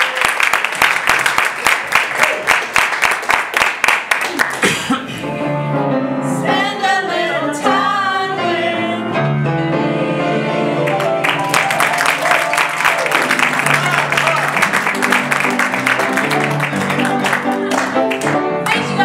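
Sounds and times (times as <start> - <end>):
audience clapping in time: 0.0 - 4.8, 10.8 - 18.9
piano accompaniment: 4.6 - 19.0
group singing long notes: 6.3 - 11.4.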